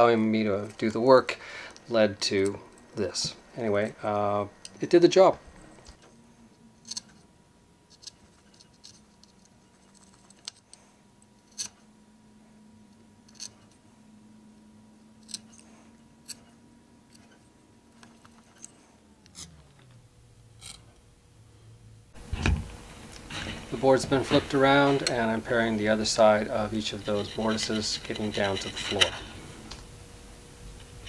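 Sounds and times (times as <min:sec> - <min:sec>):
faint steady hum: 0:00.0 - 0:31.0
chisel clicking and scraping wood: 0:26.1 - 0:29.5.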